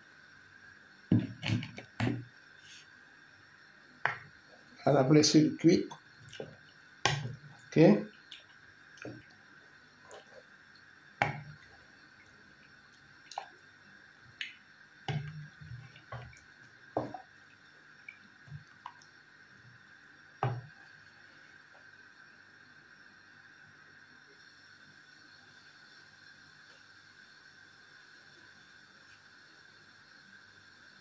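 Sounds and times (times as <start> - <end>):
thick soup bubbles popping: 4.0 - 4.5, 5.6 - 19.2.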